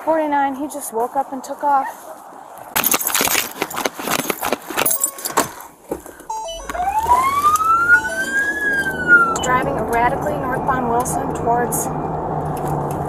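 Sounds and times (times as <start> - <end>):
keys jangling: 2.8 - 5.6
duty gear clattering: 2.8 - 6.3
short electronic chimes: 6.3 - 9.6
police siren wailing: 6.3 - 12.7
car engine starting: 6.3 - 13.0.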